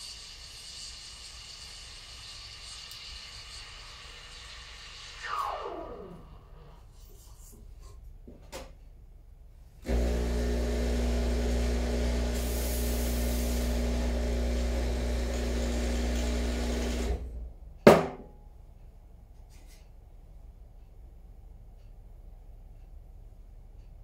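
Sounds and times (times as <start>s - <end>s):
espresso machine pump humming: 0.0s - 6.2s, 9.8s - 17.3s.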